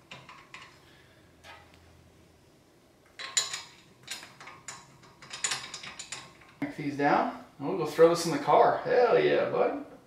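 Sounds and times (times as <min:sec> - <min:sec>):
metal tools clinking and scraping: 0:03.2 - 0:06.6.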